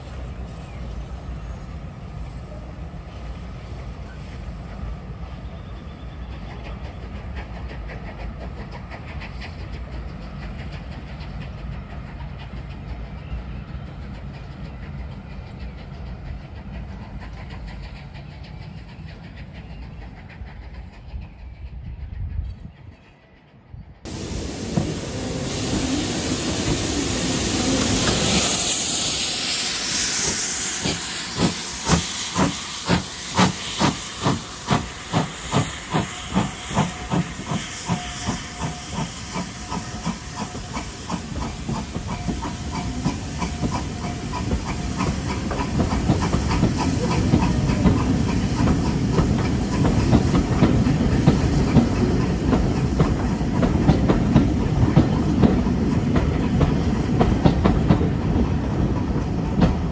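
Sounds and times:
steam hissing: 0:00.0 - 0:22.1, 0:24.1 - 0:59.9
steam locomotive exhaust beats: 0:00.0 - 0:23.0, 0:23.6 - 0:59.9
train wheels clacking over rail joints: 0:06.2 - 0:21.4, 0:30.2 - 0:59.9.

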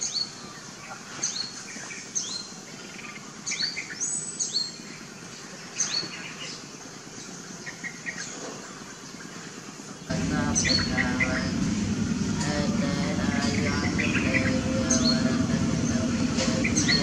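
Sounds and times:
small bird chirping: 0:00.0 - 0:11.5
outdoor background noise: 0:00.0 - 0:17.0.

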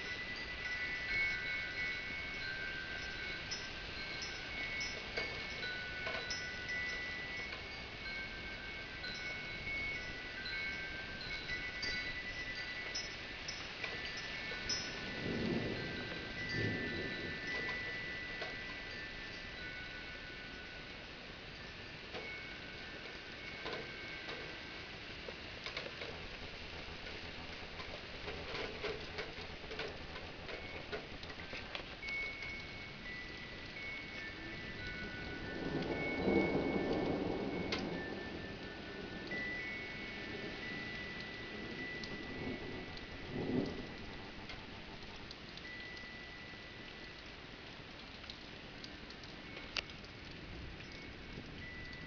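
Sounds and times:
wind chime ringing: 0:00.0 - 0:25.1, 0:27.0 - 0:47.5, 0:48.9 - 0:52.0
drips ticking: 0:00.0 - 0:52.0
raindrops tapping on hard surfaces: 0:00.0 - 0:52.0
steady rain hiss: 0:00.0 - 0:52.0
low thunder rumble: 0:13.9 - 0:19.6, 0:25.8 - 0:45.6.

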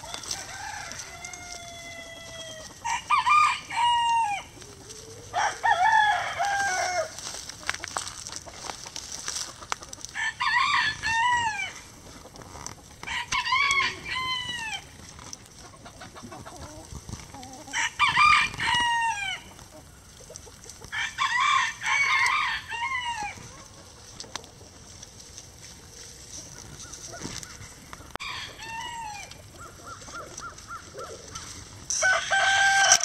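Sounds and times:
rooster crowing: 0:00.0 - 0:04.6, 0:05.3 - 0:07.2, 0:10.1 - 0:11.8, 0:13.0 - 0:14.9, 0:17.7 - 0:19.5, 0:20.9 - 0:23.4, 0:28.2 - 0:31.1, 0:31.9 - 0:33.0.

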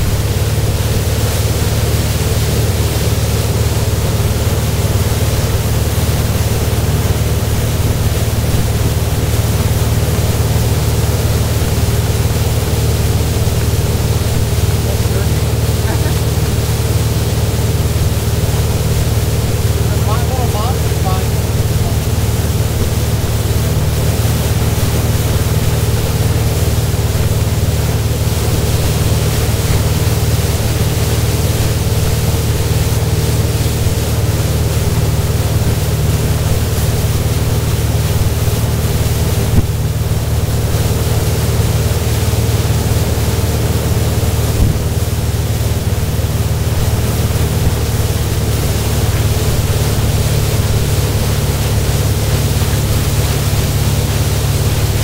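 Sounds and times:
churning wake water: 0:00.0 - 0:55.0
motorboat engine drone: 0:00.0 - 0:55.0
wind hiss on microphone: 0:04.0 - 0:55.0.

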